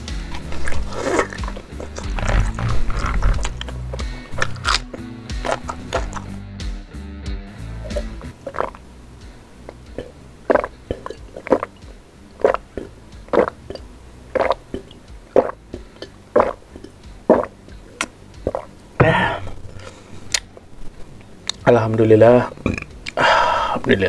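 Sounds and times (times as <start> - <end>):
person gulping water: 0.3 - 6.3, 7.8 - 8.8, 9.7 - 19.6.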